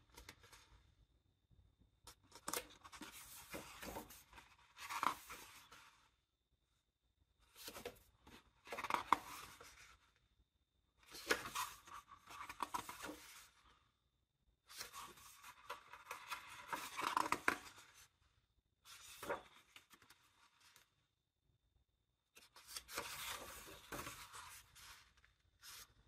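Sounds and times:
paper pages rustling: 0:02.3 - 0:06.0, 0:07.6 - 0:10.0, 0:11.1 - 0:13.8, 0:14.7 - 0:18.1, 0:18.9 - 0:20.9, 0:22.4 - 0:26.0.

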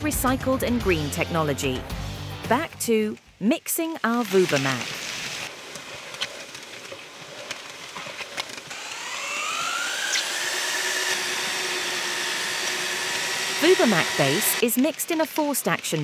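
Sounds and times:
electric paddle mixer whining: 0:08.4 - 0:14.6.

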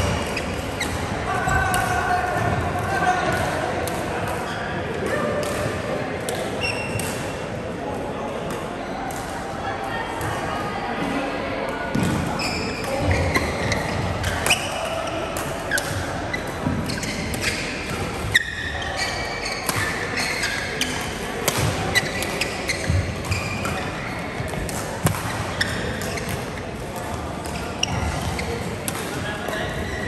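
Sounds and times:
voices: 0:00.2 - 0:30.0
racket hitting shuttlecock: 0:19.5 - 0:29.8.

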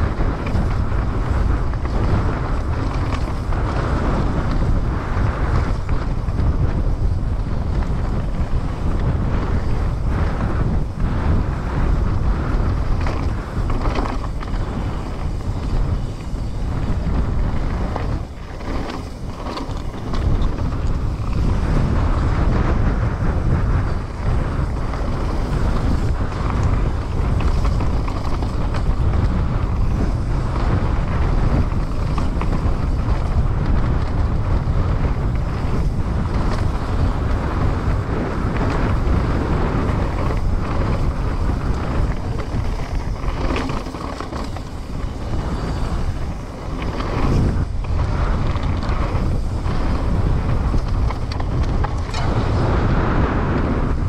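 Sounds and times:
bike frame and chain rattling: 0:00.0 - 0:54.0
bike tyres rolling over trail: 0:00.0 - 0:54.0
wind buffeting microphone: 0:00.0 - 0:54.0.

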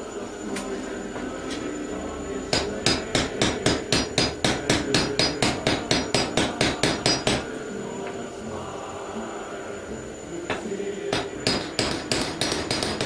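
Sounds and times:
hammer tapping on metal: 0:02.5 - 0:07.5, 0:11.1 - 0:13.0.

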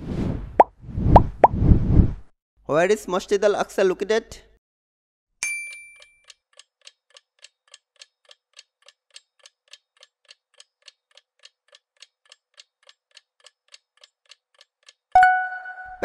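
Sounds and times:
clock ticking: 0:06.2 - 0:15.1.

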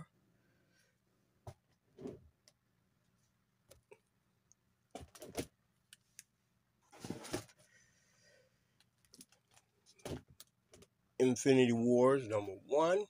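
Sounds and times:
plastic bags rustling and tapping: 0:08.8 - 0:10.9.

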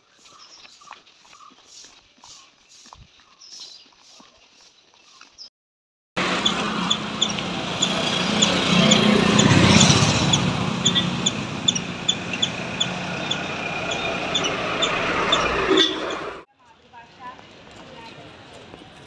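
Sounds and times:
motorcycles passing: 0:06.2 - 0:16.5
steady engine hum: 0:06.2 - 0:16.5.

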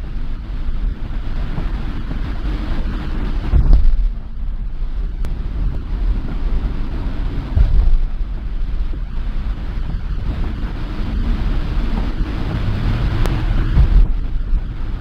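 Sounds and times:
bus engine and tyre rumble: 0:00.0 - 0:15.0
low thump: 0:03.3 - 0:04.6, 0:07.4 - 0:09.0, 0:11.9 - 0:14.7.

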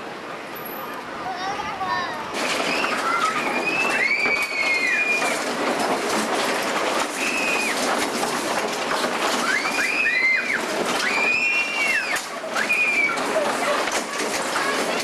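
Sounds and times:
ride cups rumbling: 0:02.2 - 0:15.0
high squeals: 0:02.5 - 0:05.4.

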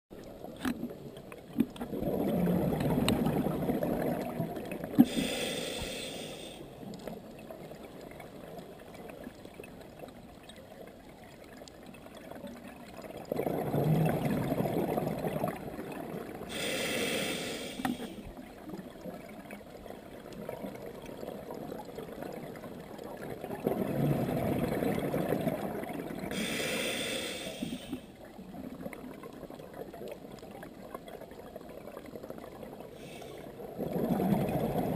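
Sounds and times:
exhaled air bubbling underwater: 0:00.2 - 0:34.9
regulator hissing inhalation: 0:05.0 - 0:06.7, 0:16.5 - 0:18.2, 0:26.3 - 0:28.0.

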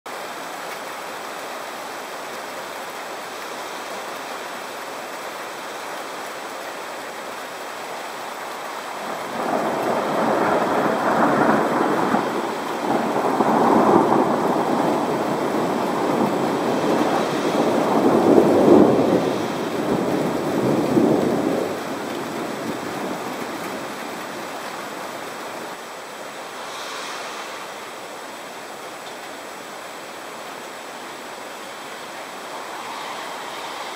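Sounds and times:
steady rain hiss: 0:00.1 - 0:33.9
thunder rolling: 0:09.0 - 0:25.5.

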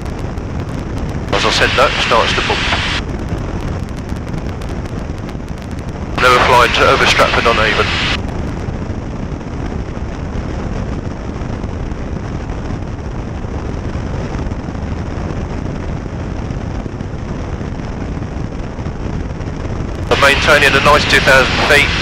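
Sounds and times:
airplane engine and propeller: 0:00.0 - 0:09.6, 0:19.9 - 0:22.0
airflow noise: 0:01.3 - 0:03.1, 0:06.2 - 0:08.2, 0:20.0 - 0:22.0.

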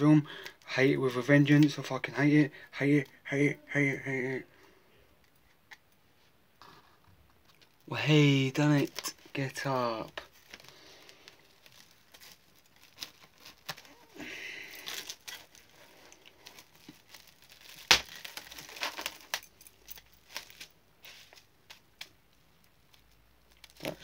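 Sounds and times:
cling film crinkling: 0:07.0 - 0:24.0.

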